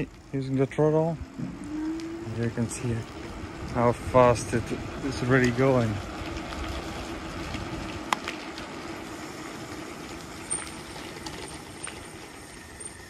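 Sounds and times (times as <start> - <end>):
tyres on wet asphalt: 0.0 - 13.0
electric motor hum: 0.1 - 13.0.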